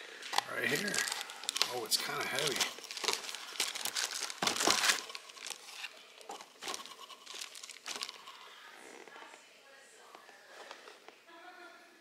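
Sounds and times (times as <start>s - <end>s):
plastic wrap crinkling: 0.1s - 8.7s.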